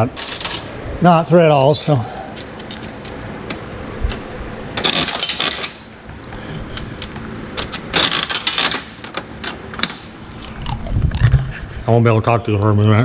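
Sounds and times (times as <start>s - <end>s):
coin mechanism clicks: 0.2s - 0.7s, 4.8s - 5.8s, 7.6s - 10.0s.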